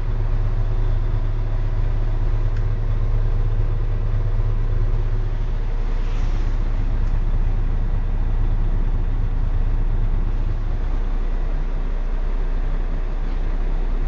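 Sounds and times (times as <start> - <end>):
bus diesel engine drone: 0.0 - 14.0.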